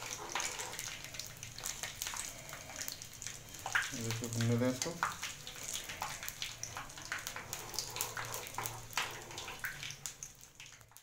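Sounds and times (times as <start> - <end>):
ladle stirring in wok: 0.0 - 1.4, 6.3 - 10.3
seeds sizzling in hot oil: 0.0 - 11.0.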